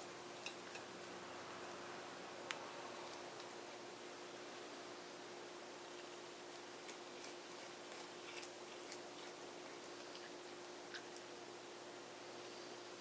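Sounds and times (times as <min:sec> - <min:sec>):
cat chewing crisp clicks: 0:06.0 - 0:11.3.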